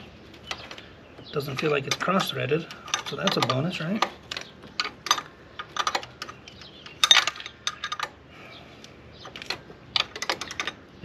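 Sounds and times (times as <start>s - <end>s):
wrench clinking against metal: 1.4s - 8.2s.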